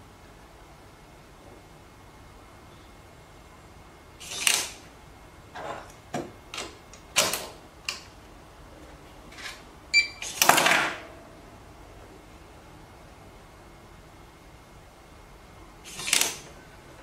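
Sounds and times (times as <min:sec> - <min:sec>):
cabinet lock clicking and clacking: 0:06.2 - 0:08.0
short electronic beep: 0:10.0 - 0:10.2.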